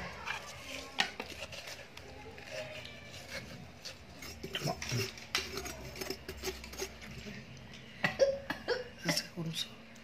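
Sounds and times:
spoon scraping watermelon: 0.0 - 7.9.

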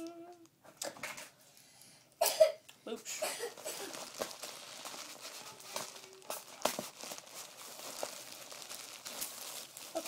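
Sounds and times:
plastic mailer bag crinkling: 3.6 - 10.0.

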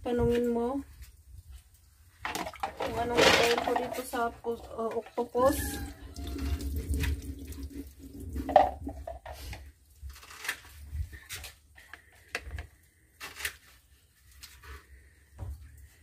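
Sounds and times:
water pouring into metal sink: 2.2 - 9.5.

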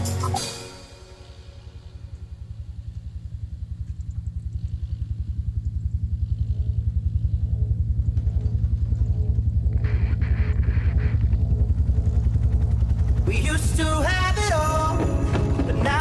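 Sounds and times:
tractor diesel engine running: 1.2 - 16.0.

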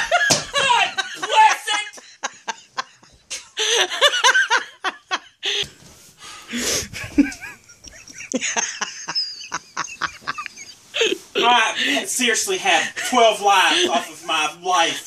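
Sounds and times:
hearty human laughter: 0.0 - 5.6, 6.8 - 11.8.

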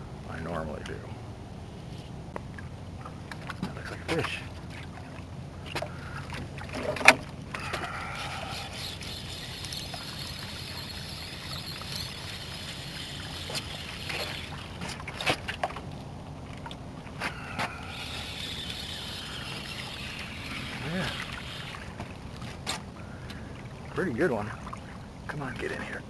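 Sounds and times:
boat motor running: 5.9 - 15.2, 17.4 - 22.4
fishing reel clicks: 8.1 - 14.7, 17.8 - 21.9.

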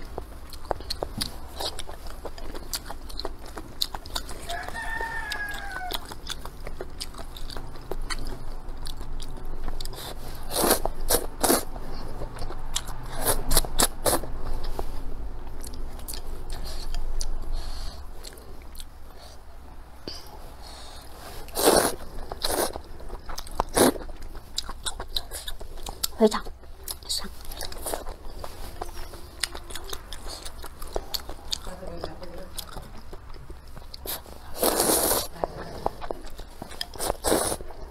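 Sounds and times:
slurping and chewing noodles: 0.0 - 14.9, 15.6 - 19.4, 20.5 - 37.9
rooster crowing: 4.4 - 6.1.

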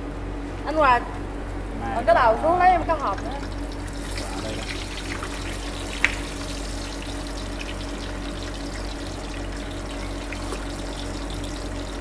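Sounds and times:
low steady hum: 0.0 - 12.0
hot oil sizzling: 3.2 - 12.0.

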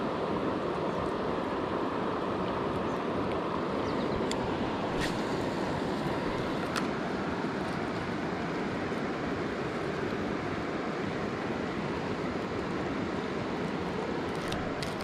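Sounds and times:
river water flowing: 0.0 - 15.0.

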